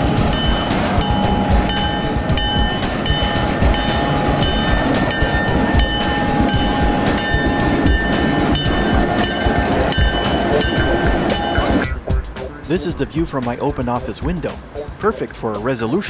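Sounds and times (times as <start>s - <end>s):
bell ringing rapidly: 0.0s - 11.9s
diesel locomotive engines rumbling: 0.0s - 16.0s.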